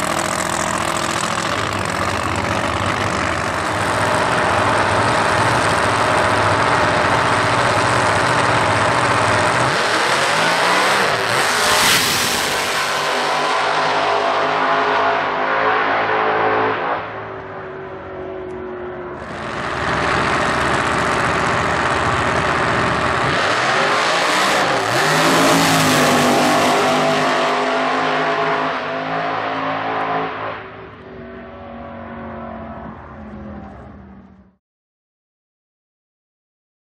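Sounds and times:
drag car engine running hard: 0.0 - 14.6, 17.9 - 29.5.

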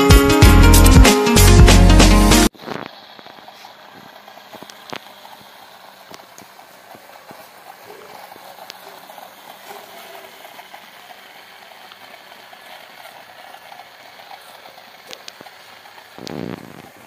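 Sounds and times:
toy car rolling over rough ground: 2.5 - 17.0
wheels clicking over grit: 2.5 - 17.0
small electric motor hum: 2.6 - 17.0.

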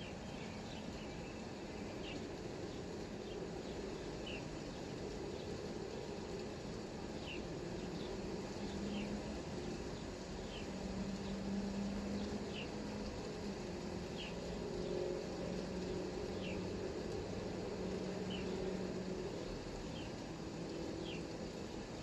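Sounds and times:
bird chirping: 0.0 - 4.8, 7.2 - 9.3, 14.1 - 14.4
light rain falling: 0.0 - 22.0
low steady hum: 0.0 - 22.0.

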